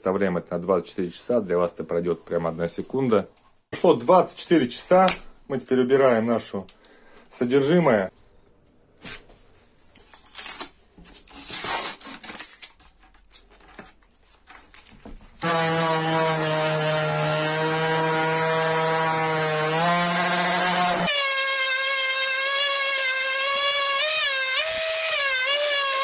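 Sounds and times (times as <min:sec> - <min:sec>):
orbital sander whining: 0:15.4 - 0:26.0.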